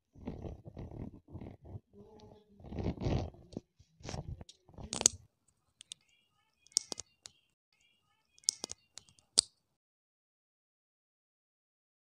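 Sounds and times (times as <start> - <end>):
sharp plastic clicks: 6.7 - 7.4, 8.4 - 9.5.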